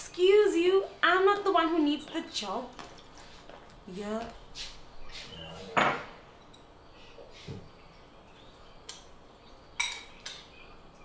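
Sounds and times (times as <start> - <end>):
spoon clinking against bowl: 9.8 - 10.5.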